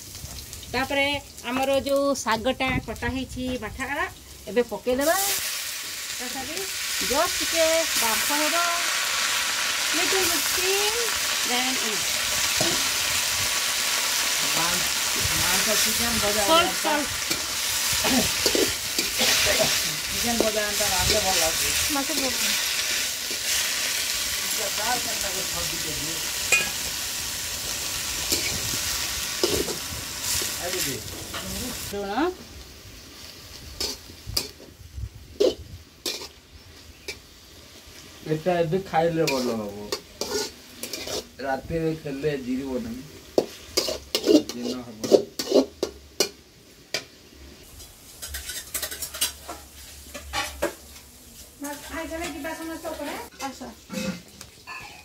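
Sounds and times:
greens sizzling in hot oil: 0:00.0 - 0:55.0
metal spatula scraping wok: 0:11.4 - 0:32.0, 0:33.2 - 0:34.6, 0:35.4 - 0:37.3, 0:39.0 - 0:41.5, 0:42.8 - 0:46.4, 0:47.8 - 0:51.0, 0:51.6 - 0:55.0
person speaking: 0:15.4 - 0:17.1
metal spatula scraping pan: 0:35.4 - 0:36.4, 0:39.2 - 0:41.4, 0:43.4 - 0:45.9, 0:48.2 - 0:50.7, 0:53.3 - 0:55.0.

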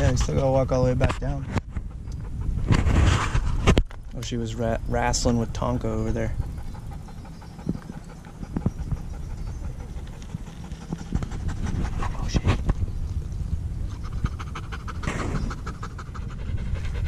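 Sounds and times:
low steady rumble: 0:00.0 - 0:17.0
dog panting: 0:01.6 - 0:03.4, 0:05.2 - 0:12.8, 0:13.9 - 0:17.0.

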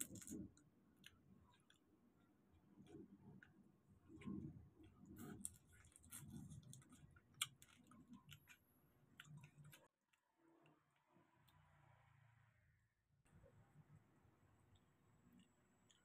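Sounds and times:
prawns being peeled: 0:00.0 - 0:01.9, 0:02.6 - 0:09.9
chewing: 0:02.8 - 0:09.9.

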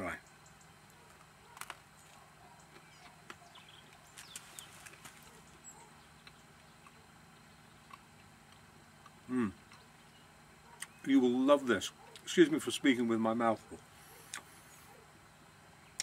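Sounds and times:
man chewing bread: 0:00.8 - 0:11.0, 0:11.9 - 0:12.3, 0:13.8 - 0:15.1.

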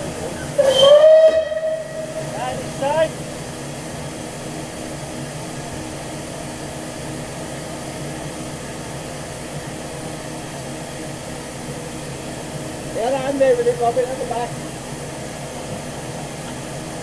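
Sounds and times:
steam locomotive hissing: 0:00.0 - 0:17.0.

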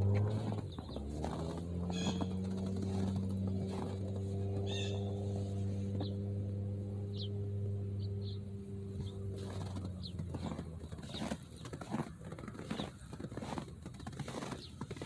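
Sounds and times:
footsteps crunching on snow: 0:00.0 - 0:06.2, 0:08.9 - 0:15.0
steady low hum: 0:00.0 - 0:13.8
high bird chirps: 0:04.6 - 0:05.2, 0:07.0 - 0:07.4, 0:08.0 - 0:09.2.

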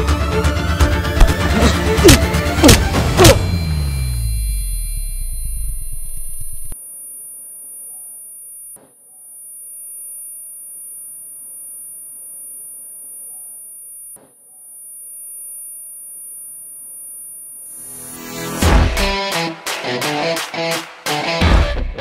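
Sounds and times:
high-pitched ringing tone: 0:03.2 - 0:18.4.

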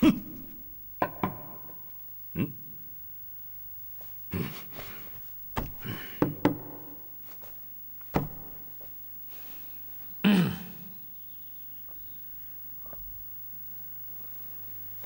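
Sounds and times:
dull knocks on table: 0:08.1 - 0:08.7.

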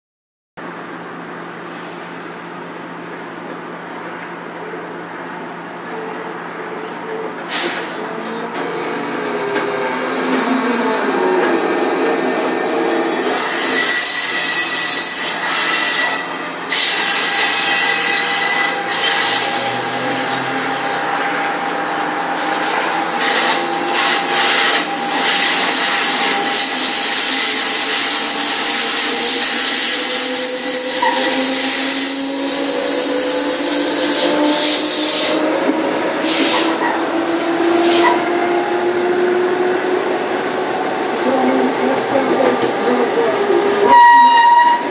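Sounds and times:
locomotive motors whining: 0:17.4 - 0:27.8.

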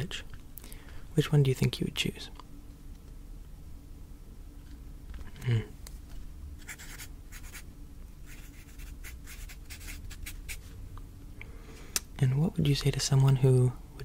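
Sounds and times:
pen scratching on paper: 0:06.6 - 0:07.6, 0:08.3 - 0:10.6.

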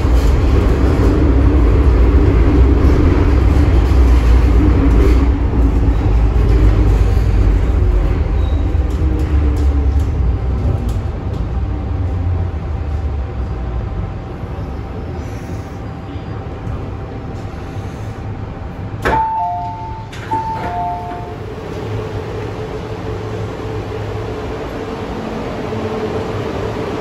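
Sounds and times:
train running rumble: 0:00.0 - 0:27.0
two-note electronic chime: 0:19.1 - 0:21.4.

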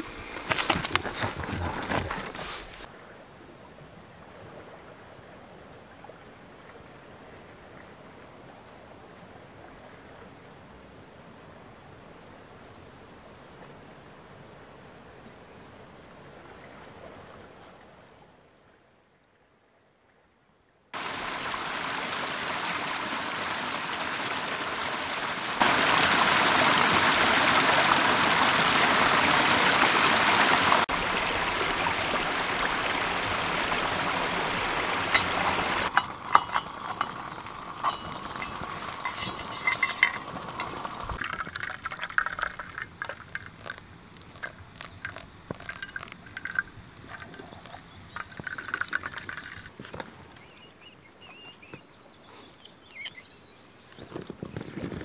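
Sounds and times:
rushing stream water: 0:00.0 - 0:18.2, 0:20.9 - 0:52.3
water trickling and dripping: 0:21.0 - 0:50.5
water poured through coffee filter: 0:33.1 - 0:49.9.

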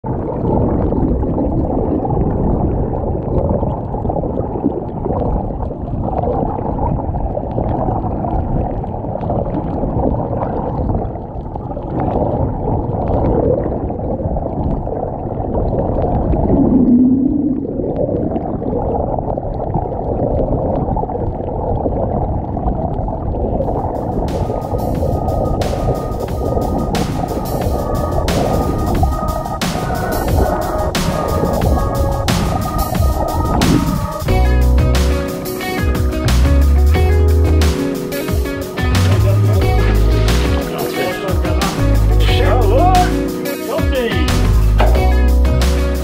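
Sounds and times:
muffled water rushing and gurgling: 0:00.0 - 0:46.0
low hum: 0:16.4 - 0:18.1.

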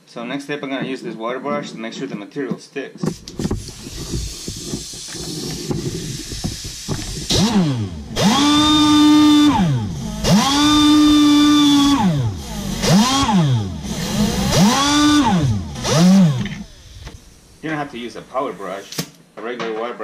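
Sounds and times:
air die grinder whining: 0:03.5 - 0:17.6.

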